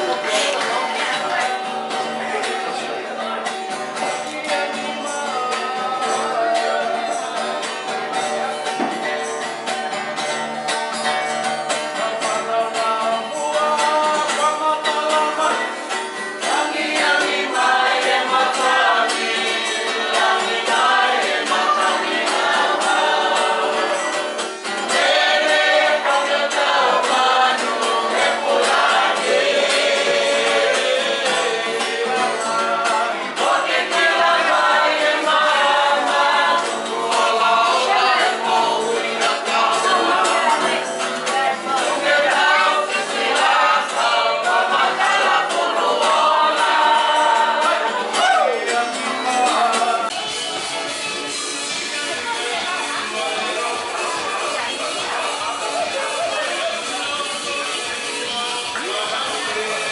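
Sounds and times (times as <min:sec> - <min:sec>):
choir singing: 0:12.0 - 0:50.4.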